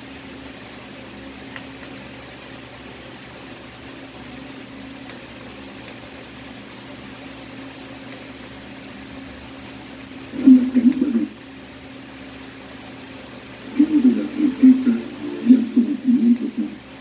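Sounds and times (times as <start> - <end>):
television electrical hum: 0.0 - 17.0
faint television hiss: 10.2 - 17.0.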